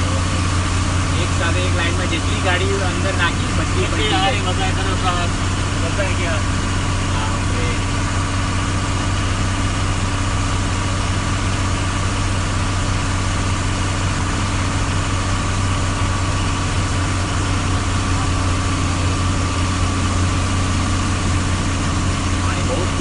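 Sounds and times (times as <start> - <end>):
vehicle engine hum: 0.0 - 23.0.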